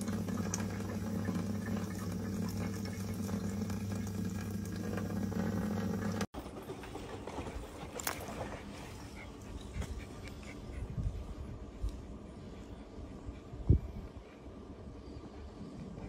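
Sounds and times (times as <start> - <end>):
tap water running into sink: 0.0 - 6.3
outdoor background: 0.0 - 16.0.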